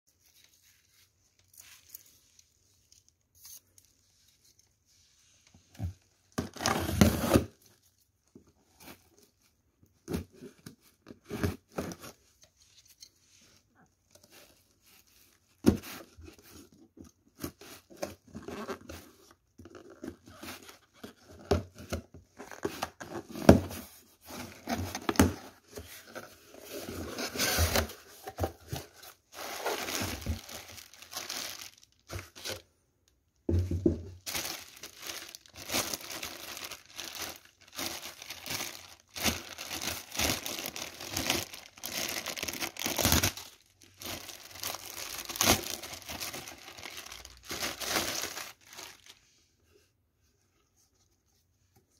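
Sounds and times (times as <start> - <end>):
plastic packing crinkling: 24.5 - 32.6, 34.1 - 49.2.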